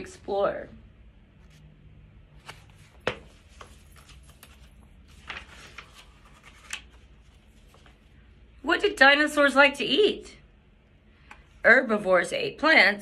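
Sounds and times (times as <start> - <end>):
book pages rustling: 1.3 - 8.3.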